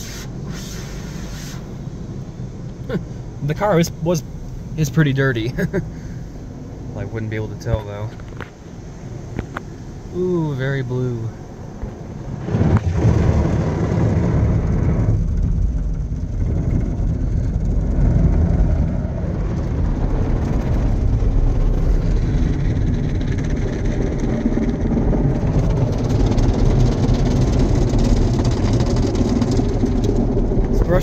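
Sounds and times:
water spray on car: 0.0 - 1.8, 11.9 - 31.0
heavy low rumble: 0.0 - 31.0.

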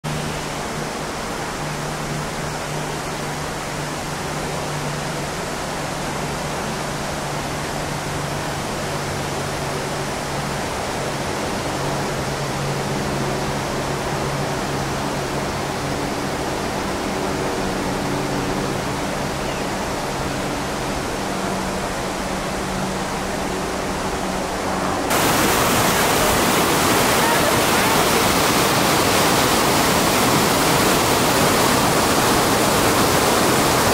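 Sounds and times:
waterfall rushing: 0.1 - 33.9.

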